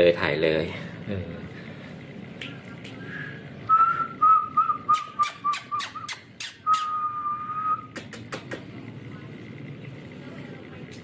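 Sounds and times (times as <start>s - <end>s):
person whistling: 3.7s - 7.9s.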